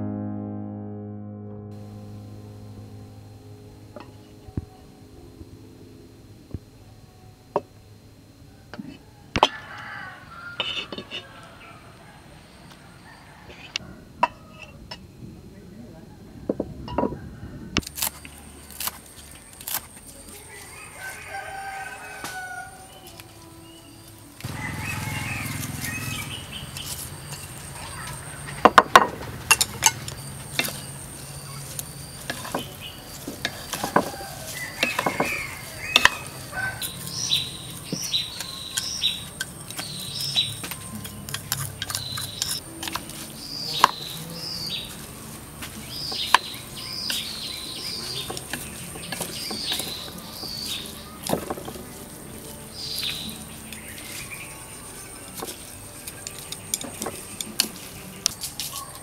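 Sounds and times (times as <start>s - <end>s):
rooster crowing: 8.5s - 15.0s, 16.3s - 17.9s, 20.4s - 40.4s
small birds chirping: 18.3s - 28.8s, 29.4s - 59.0s.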